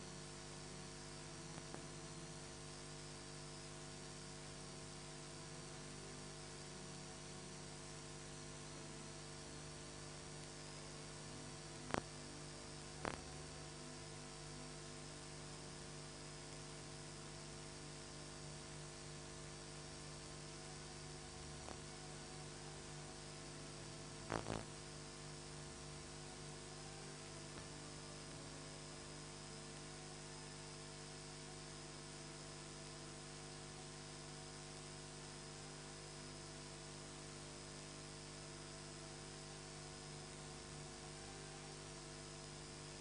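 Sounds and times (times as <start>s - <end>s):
electrical mains hum with hiss: 0.0s - 43.0s.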